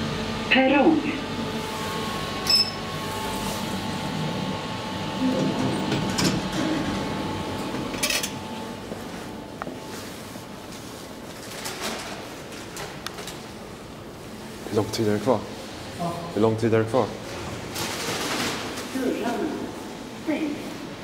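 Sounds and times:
elevator car hum: 0.0 - 21.0
short high beep: 2.5 - 2.8
elevator doors sliding open: 5.0 - 8.4.

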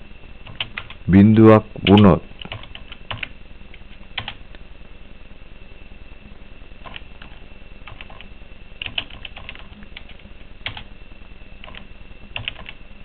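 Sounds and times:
faint high whine: 0.0 - 13.0
low hum: 0.0 - 13.0
keyboard typing: 0.4 - 1.0, 1.8 - 3.3, 6.8 - 10.9, 11.6 - 12.8.

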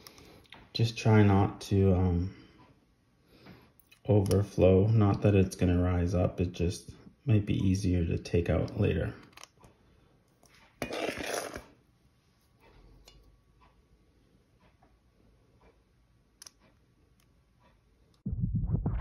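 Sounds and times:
scoop scraping: 10.4 - 11.8.

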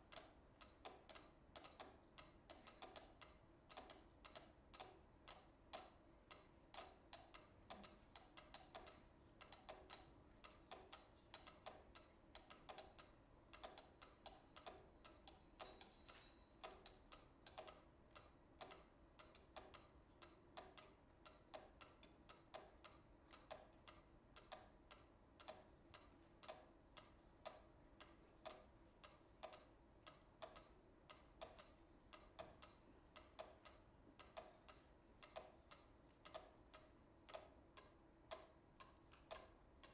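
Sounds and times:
metronomes ticking: 0.1 - 39.9.

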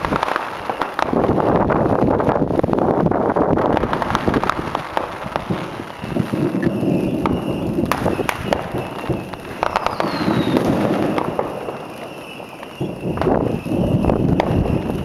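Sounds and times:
firework shells bursting: 0.0 - 2.4, 3.5 - 15.0
falling whistle: 5.8 - 15.0.

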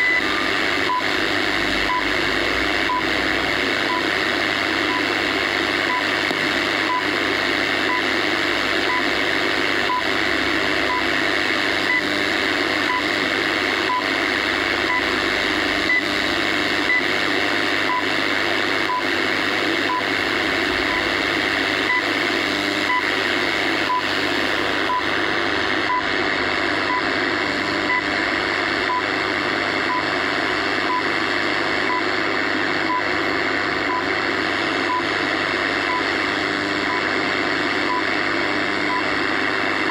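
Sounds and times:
radio static hiss: 0.0 - 39.9
radio time signal ticks: 2.8 - 4.1, 4.7 - 8.2, 8.8 - 12.1, 12.8 - 17.2, 18.8 - 19.1, 19.8 - 24.2, 27.8 - 28.1, 33.8 - 34.2.

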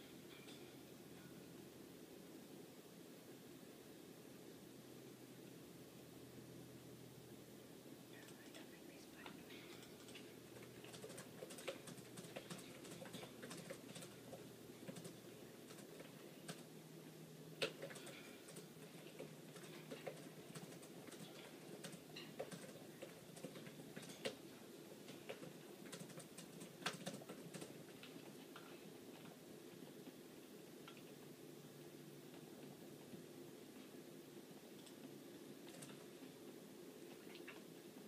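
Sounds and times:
faint clicks and light taps: 30.8 - 31.3.

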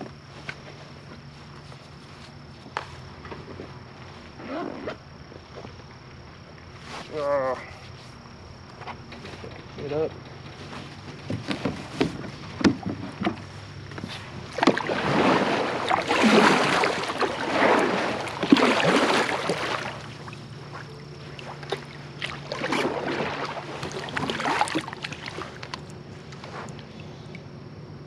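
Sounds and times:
water splashing against kayak hull: 10.3 - 26.8.

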